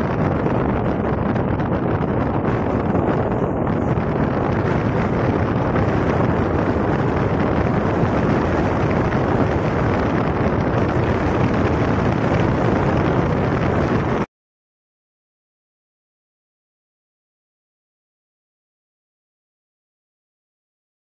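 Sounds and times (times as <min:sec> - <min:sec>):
wind buffeting microphone: 0:00.0 - 0:14.3.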